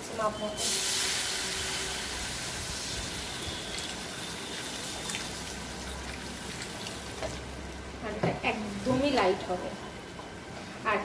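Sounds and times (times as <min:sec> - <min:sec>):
water pouring into hot pan: 0:00.6 - 0:07.6.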